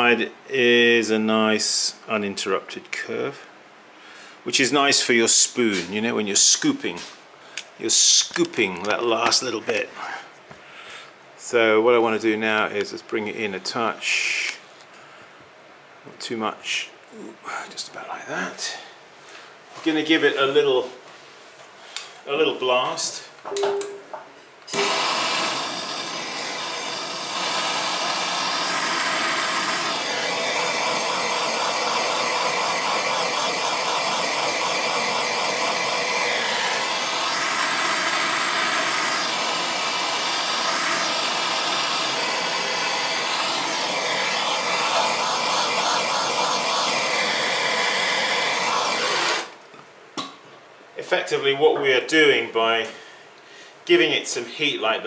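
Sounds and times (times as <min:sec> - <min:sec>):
propane torch hissing: 0:24.7 - 0:49.6.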